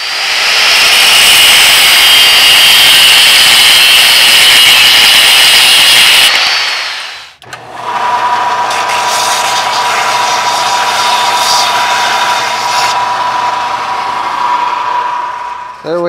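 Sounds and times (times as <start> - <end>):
power tool cutting steel rod: 0.0 - 16.0
belt sander humming: 6.2 - 16.0.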